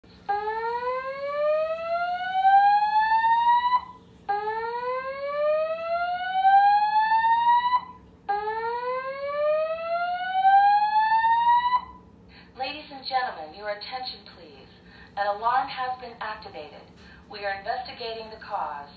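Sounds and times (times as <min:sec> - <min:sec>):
fire alarm whooping: 0:00.2 - 0:12.1.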